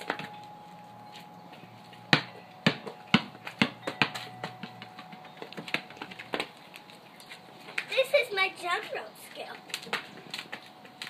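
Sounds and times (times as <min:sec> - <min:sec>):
basketball bouncing on concrete: 0:00.0 - 0:00.5, 0:02.0 - 0:06.5, 0:09.7 - 0:11.0.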